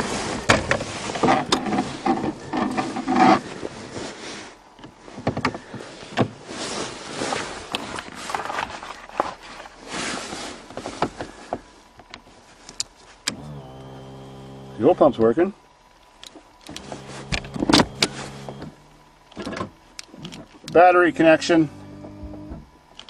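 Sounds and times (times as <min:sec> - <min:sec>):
electric fuel pump humming: 0:00.0 - 0:03.4, 0:13.2 - 0:23.0
rustling: 0:00.0 - 0:13.2, 0:16.3 - 0:18.9.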